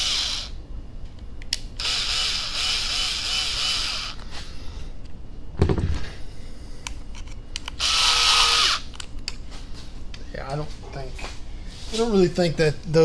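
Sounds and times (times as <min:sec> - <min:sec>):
electric screwdriver running: 0:00.0 - 0:00.6, 0:01.8 - 0:04.2, 0:07.8 - 0:08.8.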